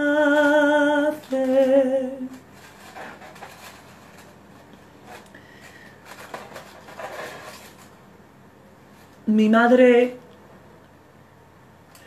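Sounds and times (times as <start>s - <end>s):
soft handling rustles: 0.4s - 8.0s.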